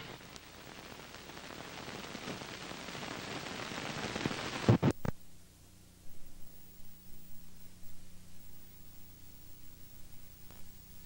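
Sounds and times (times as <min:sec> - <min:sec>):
faint low hum: 0:00.0 - 0:11.0
film soundtrack hiss and static: 0:00.0 - 0:11.0
sharp pops: 0:04.1 - 0:05.2.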